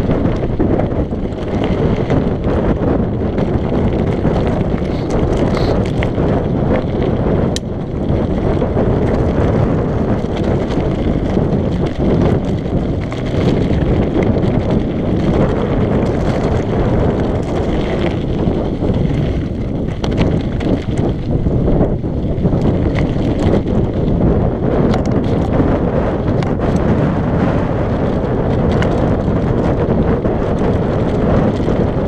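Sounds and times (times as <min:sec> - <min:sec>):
bike clicks and rattles: 0:00.0 - 0:32.0
wind noise on microphone: 0:00.0 - 0:32.0
tyres rolling over stones: 0:08.2 - 0:23.8.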